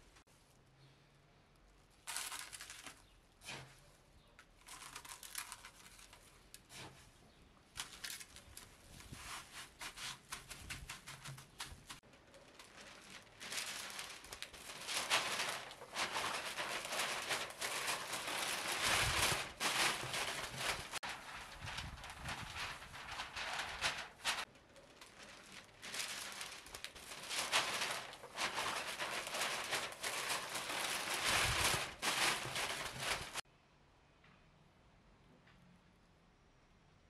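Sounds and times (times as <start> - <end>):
paper and foil crinkling: 1.8 - 3.6, 4.6 - 7.0, 7.8 - 33.4
coarse salt crunching in metal tray: 4.6 - 6.6.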